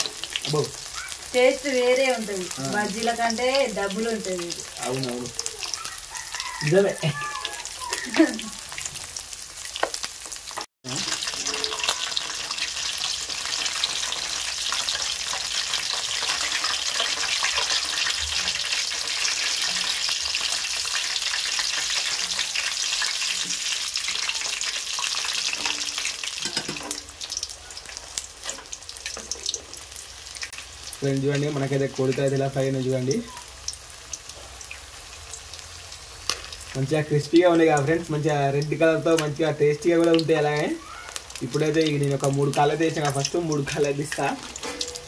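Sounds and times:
food deep-frying in hot oil: 0.0s - 45.0s
metal tongs touching pan: 44.4s - 45.0s.

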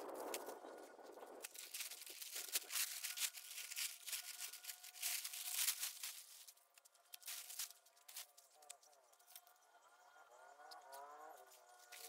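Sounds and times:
plastic tarp crinkling and rustling: 0.0s - 8.8s.

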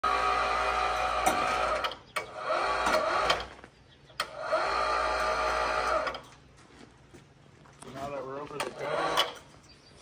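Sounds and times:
electric hoist motor running: 0.0s - 3.5s, 4.2s - 6.3s, 8.6s - 9.4s.

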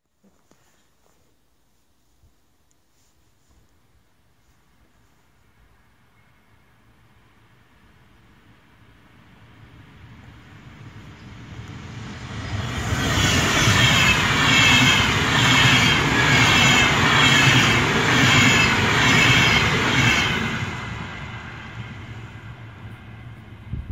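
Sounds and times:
passenger train passing: 6.0s - 23.9s.

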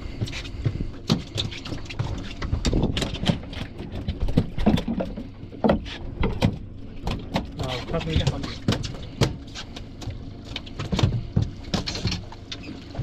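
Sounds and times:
gear knocking on boat hull: 0.2s - 9.5s.

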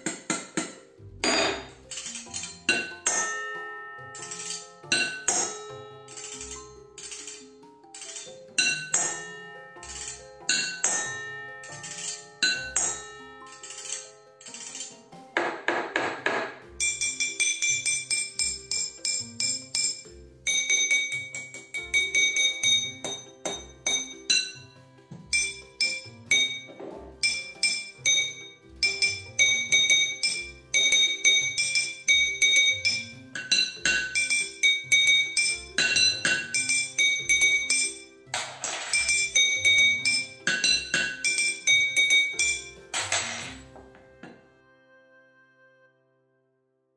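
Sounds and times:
glass of water clinking: 8.0s - 24.7s, 25.3s - 43.7s
wooden spoon knocking on pot: 15.4s - 16.7s.

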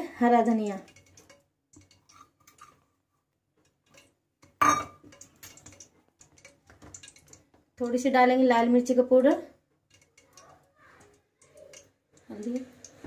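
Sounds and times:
light ticks and taps: 0.8s - 2.8s, 3.6s - 8.1s, 9.7s - 13.0s
metal bowl clinking down: 3.8s - 8.0s.

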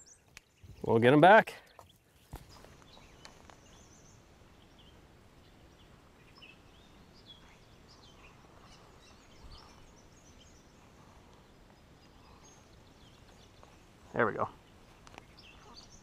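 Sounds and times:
faint songbirds chirping: 0.0s - 16.0s
low outdoor hush: 0.0s - 16.0s.

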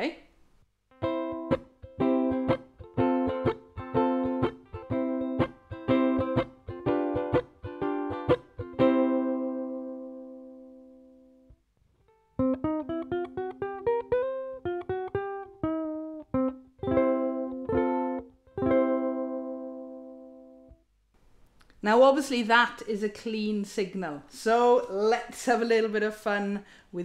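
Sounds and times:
ukulele chords strummed: 1.0s - 11.1s, 12.2s - 20.8s.

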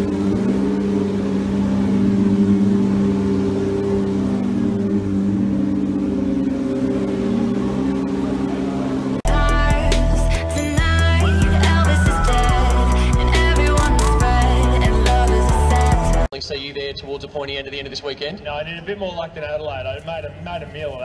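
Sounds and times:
racing car engines: 0.0s - 16.3s.

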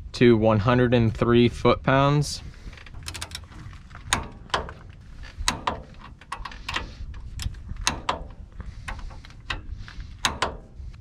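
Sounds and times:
torque wrench ratcheting clicks: 2.9s - 3.5s.

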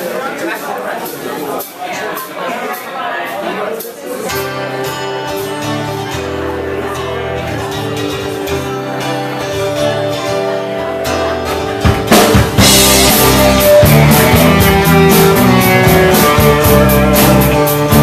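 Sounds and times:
live rock band: 4.1s - 18.0s
drum hits: 11.8s - 18.0s.

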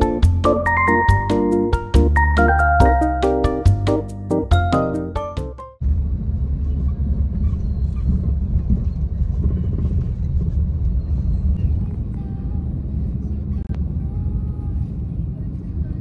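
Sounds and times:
low ambient rumble: 5.8s - 16.0s.

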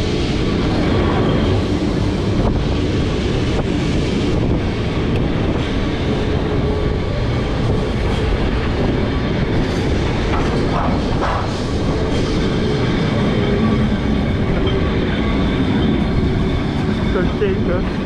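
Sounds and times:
tram wheels rumbling: 0.0s - 18.0s.

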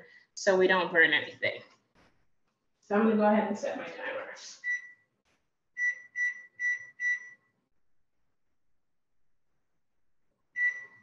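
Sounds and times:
digital timer keypad beeps: 5.8s - 7.4s.

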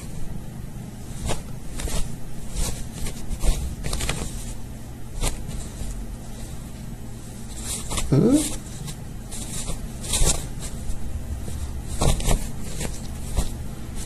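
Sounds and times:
cloth rustling: 1.0s - 14.0s
low rumble: 10.8s - 14.0s.

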